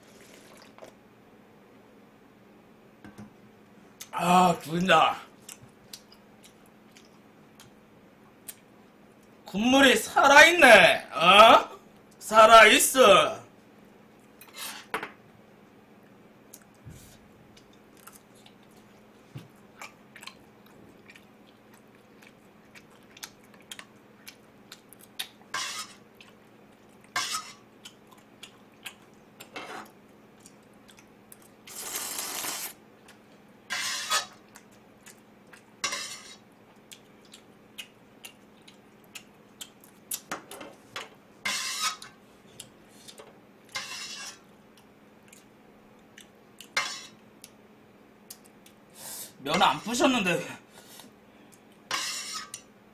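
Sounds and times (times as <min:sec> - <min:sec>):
noisy eating sounds: 0:05.2 - 0:09.3, 0:16.0 - 0:40.4, 0:41.5 - 0:50.0.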